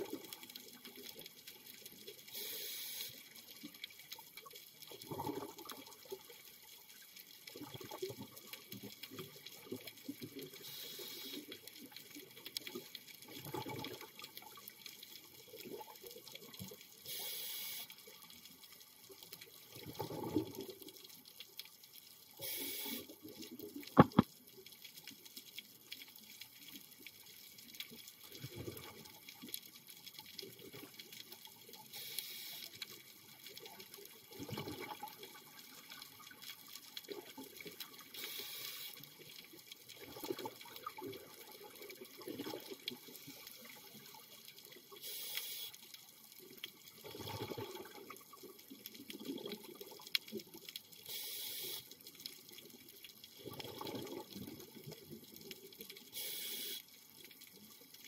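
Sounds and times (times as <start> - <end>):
regulator inhalation hiss: 2.3 - 3.2, 10.6 - 11.4, 17.0 - 17.9, 22.4 - 23.1, 32.0 - 32.7, 38.2 - 39.0, 45.0 - 45.8, 51.1 - 51.9, 56.1 - 56.8
exhaled bubbles burbling: 4.9 - 6.2, 7.5 - 8.4, 13.3 - 14.6, 19.7 - 20.9, 28.4 - 29.0, 34.3 - 35.5, 40.0 - 43.0, 46.9 - 50.0, 53.4 - 55.2.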